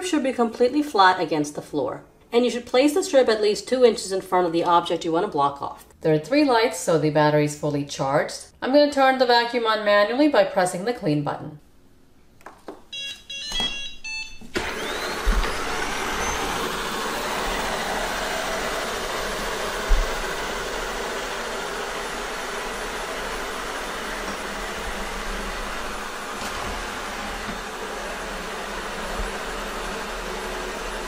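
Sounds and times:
short electronic beeps: 0:12.9 - 0:14.5
robot vacuum motor running: 0:14.5 - 0:31.0.

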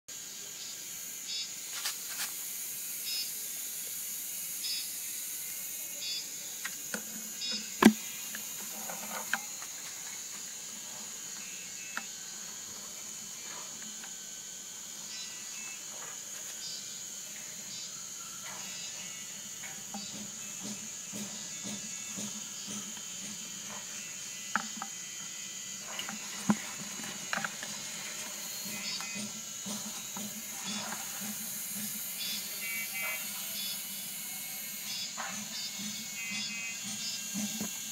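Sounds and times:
insect chirring: 0:00.2 - 0:37.9
knock on plastic bucket: 0:07.8 - 0:08.1.

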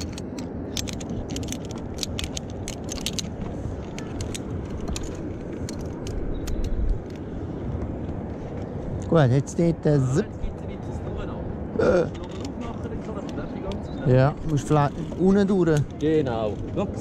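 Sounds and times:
metal carabiners clicking: 0:00.0 - 0:07.2, 0:12.0 - 0:16.6.

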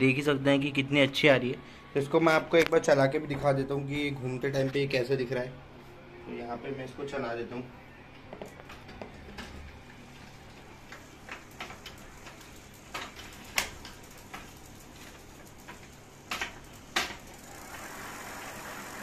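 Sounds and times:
bicycle wheel spinning: 0:10.0 - 0:19.0
sharp ticks of bicycle wheel: 0:10.9 - 0:19.0.

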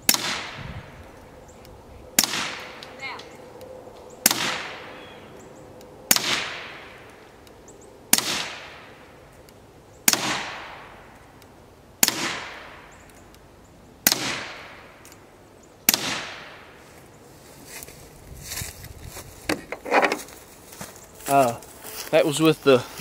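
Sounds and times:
suppressed pistol shots: 0:00.1 - 0:00.6, 0:02.2 - 0:02.9, 0:04.2 - 0:05.0, 0:06.1 - 0:07.0, 0:08.1 - 0:09.0, 0:10.0 - 0:11.0, 0:12.0 - 0:13.0, 0:14.0 - 0:15.2, 0:15.9 - 0:16.6
gunshot echo: 0:00.1 - 0:00.8, 0:02.2 - 0:02.9, 0:04.2 - 0:05.0, 0:06.1 - 0:07.1, 0:08.1 - 0:09.0, 0:10.1 - 0:11.2, 0:12.0 - 0:12.9, 0:14.0 - 0:15.0, 0:15.9 - 0:16.7.

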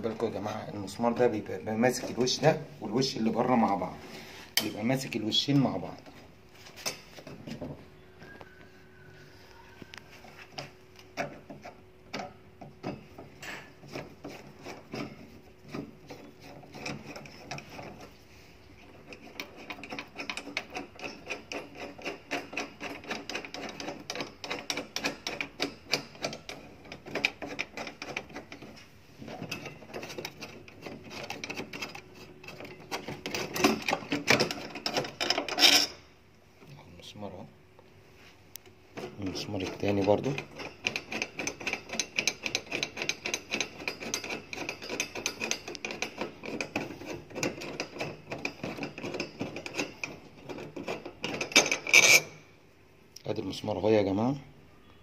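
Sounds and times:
screwdriver clicking and scraping metal: 0:09.9 - 0:18.2, 0:18.8 - 0:36.0, 0:39.0 - 0:52.4.

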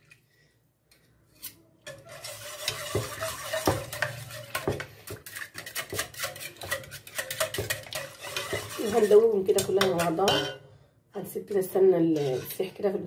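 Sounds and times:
whisk scraping metal pot: 0:01.4 - 0:10.6, 0:12.0 - 0:13.0.

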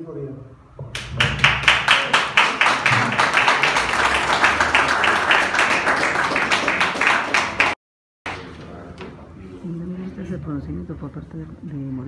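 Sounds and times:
small group applauding: 0:00.9 - 0:08.5.

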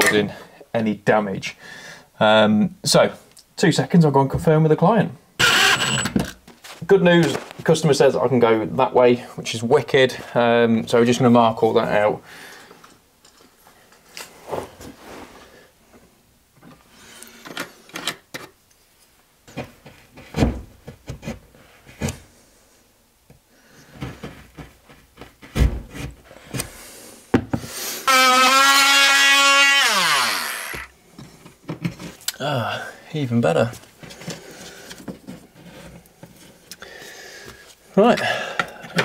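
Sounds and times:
power tool whining: 0:05.4 - 0:06.3, 0:28.0 - 0:30.9.

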